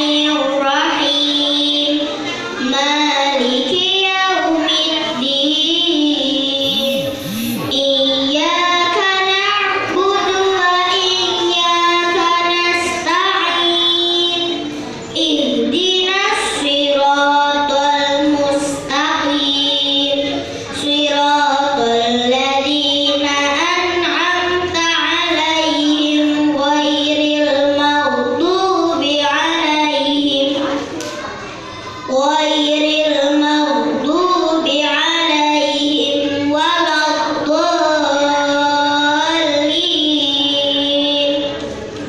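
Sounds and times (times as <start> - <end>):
girl chanting into microphone: 2.7 - 30.8.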